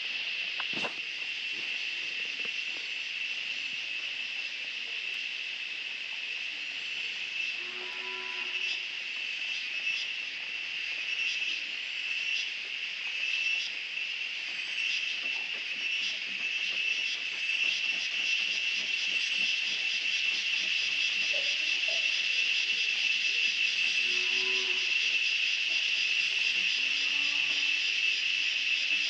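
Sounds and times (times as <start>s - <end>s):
insect chorus shrilling: 0.0s - 29.0s.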